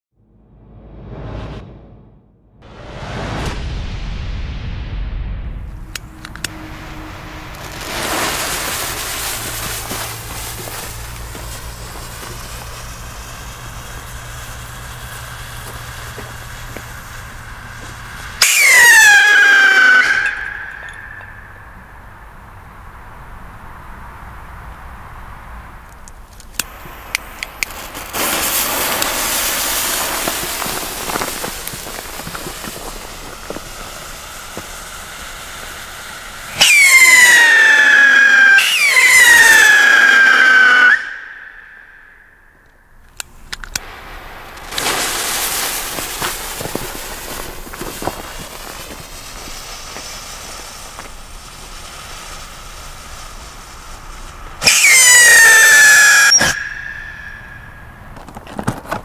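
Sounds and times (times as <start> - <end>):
whistling rockets taking off: 5.0 - 22.8, 26.4 - 58.4
firework fuses hissing: 6.0 - 22.1, 26.2 - 41.8, 43.2 - 58.4.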